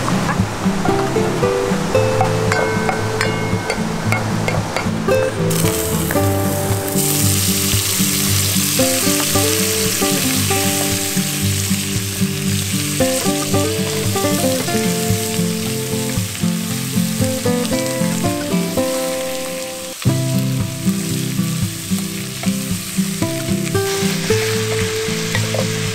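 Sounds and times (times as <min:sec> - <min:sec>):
melodic background music: 0:00.0 - 0:25.9
meat sizzling in hot oil: 0:05.5 - 0:25.9.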